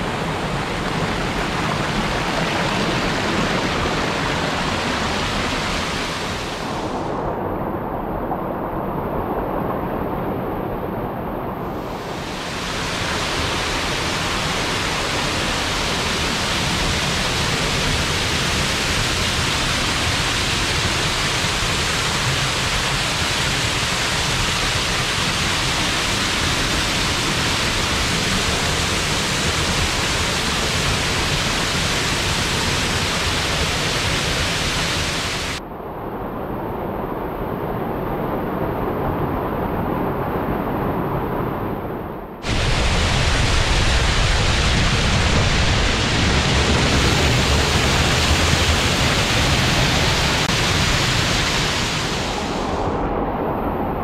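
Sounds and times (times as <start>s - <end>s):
waterfall splashing into pool: 12.5s - 35.6s, 42.4s - 52.6s.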